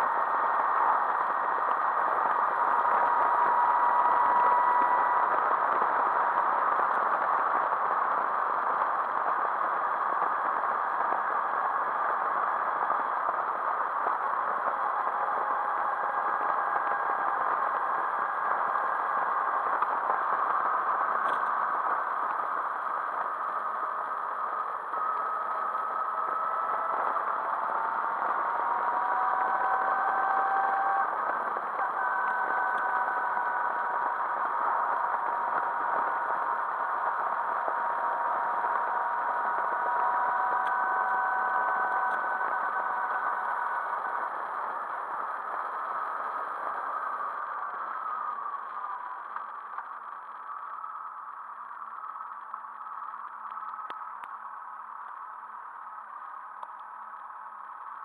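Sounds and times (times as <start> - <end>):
motorcycle engine at speed: 0.0 - 9.2, 9.8 - 49.2
wind noise: 0.0 - 51.0.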